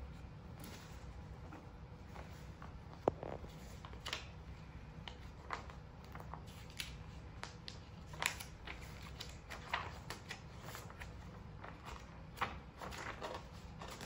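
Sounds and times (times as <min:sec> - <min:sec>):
paper rustling and crinkling: 0:00.0 - 0:14.0.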